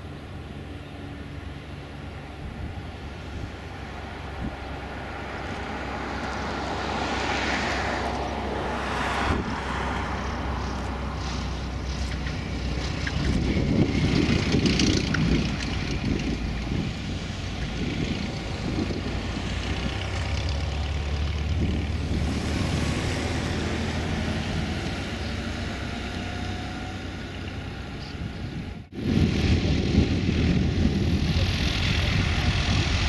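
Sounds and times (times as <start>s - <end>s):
plane engine and propeller: 0.0s - 33.0s
wind noise on microphone: 2.3s - 4.8s, 6.4s - 25.8s, 27.8s - 33.0s.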